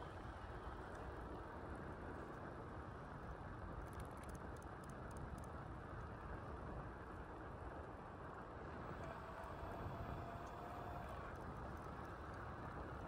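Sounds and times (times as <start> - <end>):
faint ticks: 3.3 - 6.2.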